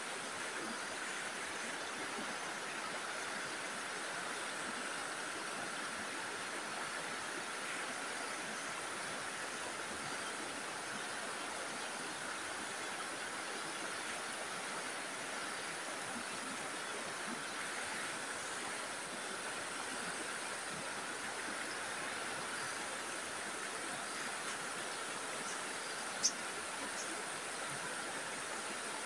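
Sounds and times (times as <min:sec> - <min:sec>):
stream water flowing: 0:00.0 - 0:29.0.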